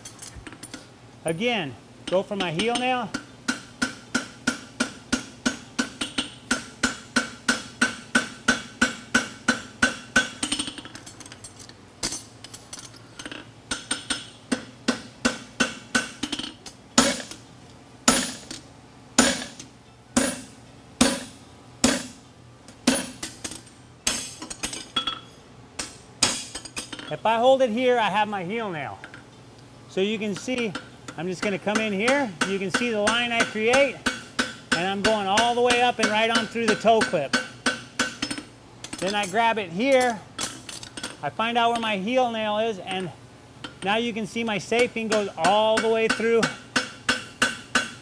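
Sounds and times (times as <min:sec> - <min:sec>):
hammer striking horseshoe on anvil: 0:02.1 - 0:10.9, 0:13.7 - 0:17.4, 0:18.1 - 0:18.6, 0:19.2 - 0:22.2, 0:22.8 - 0:27.1, 0:30.4 - 0:41.9, 0:44.8 - 0:48.0.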